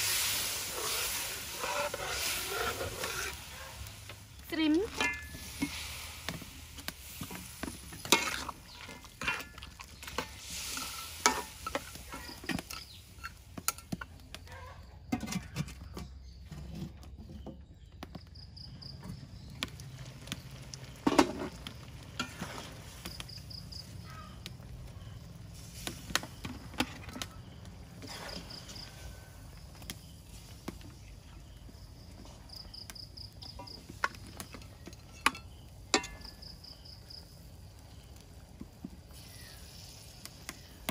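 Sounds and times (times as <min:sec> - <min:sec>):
sauce sizzling: 0:00.0 - 0:14.0
insect chirps: 0:00.0 - 0:14.1, 0:17.8 - 0:40.9
metal spatula scraping in wok: 0:00.0 - 0:14.1, 0:21.0 - 0:22.9, 0:28.0 - 0:29.3.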